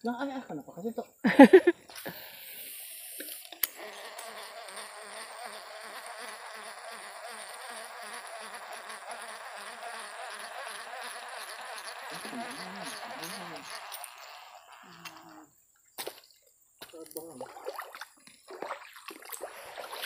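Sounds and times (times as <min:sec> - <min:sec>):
insect buzzing: 0:01.3 - 0:16.4.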